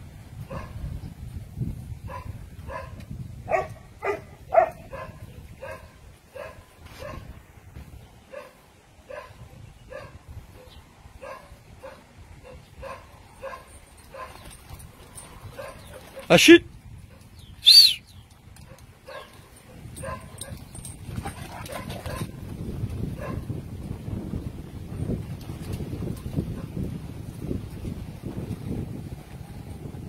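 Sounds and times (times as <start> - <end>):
dog barking: 0.5 - 0.8, 2.1 - 7.4, 8.3 - 14.4, 15.6 - 16.4, 18.7 - 20.6, 21.5 - 22.4, 23.2 - 23.5.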